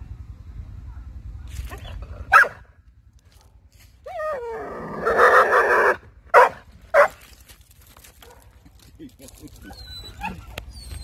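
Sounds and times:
dog barking: 0:02.3 - 0:02.6, 0:05.1 - 0:07.2, 0:08.2 - 0:08.6
dog crying: 0:04.1 - 0:06.0, 0:09.6 - 0:11.0
dog whining: 0:09.6 - 0:11.0.

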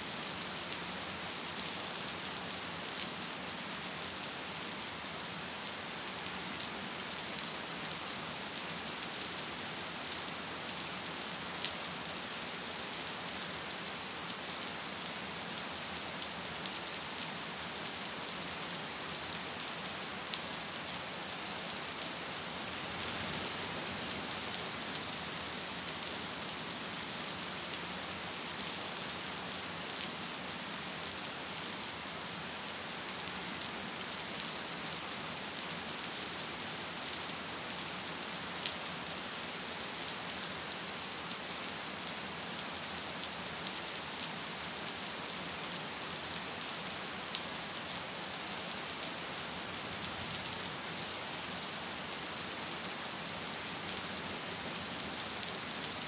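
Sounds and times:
gentle rain hissing: 0:00.0 - 0:56.0.

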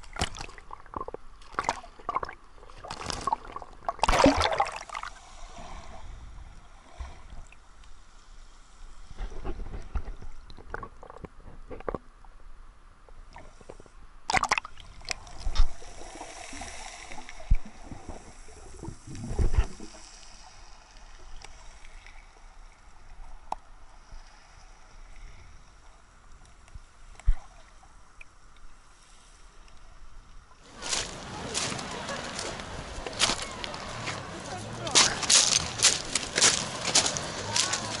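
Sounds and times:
waves washing over pebbles: 0:00.0 - 0:05.9, 0:30.6 - 0:38.0.

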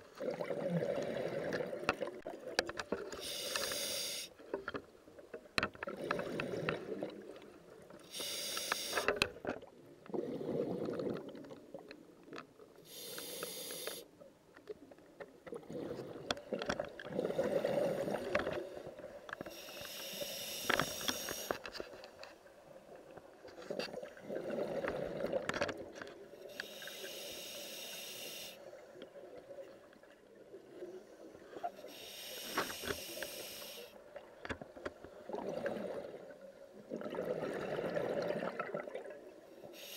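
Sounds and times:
regulator hissing inhale: 0:03.2 - 0:04.4, 0:08.0 - 0:09.2, 0:12.8 - 0:14.1, 0:19.4 - 0:21.6, 0:26.4 - 0:28.7, 0:31.8 - 0:34.0, 0:39.7 - 0:39.9.

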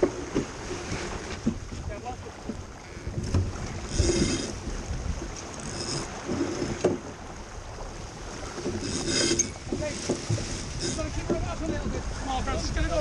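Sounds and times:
sharp knocks of boat gear: 0:00.0 - 0:01.8, 0:02.4 - 0:07.2, 0:08.6 - 0:12.0
water splashing along hull: 0:00.0 - 0:13.0
wind rumbling on microphone: 0:00.0 - 0:13.0.

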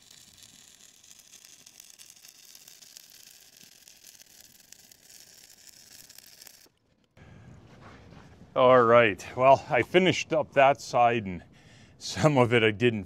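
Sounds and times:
welding arc crackling: 0:00.0 - 0:06.8.

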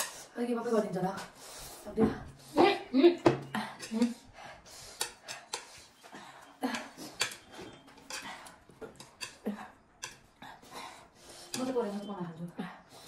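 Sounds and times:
sharp breaths through mouth: 0:04.1 - 0:07.2.

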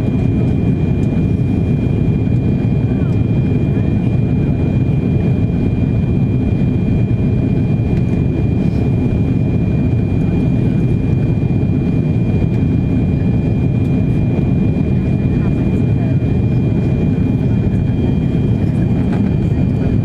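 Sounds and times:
airplane cabin rumble: 0:00.0 - 0:20.0
high engine whine: 0:00.0 - 0:20.0.

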